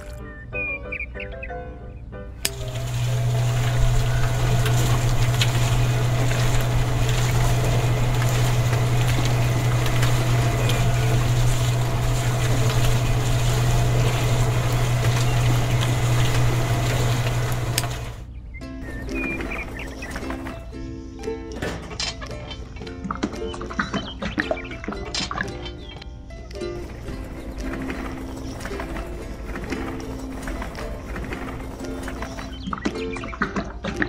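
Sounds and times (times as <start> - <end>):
small electric motor humming: 2.4 - 18.3
concrete mixer drum churning: 2.4 - 20.7, 26.7 - 34.0.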